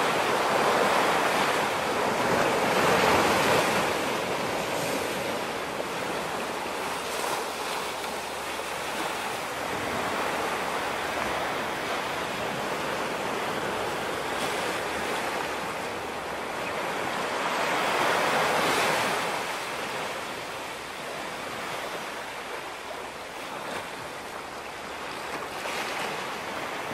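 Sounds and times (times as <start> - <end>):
small waves washing on beach: 0.0 - 26.9.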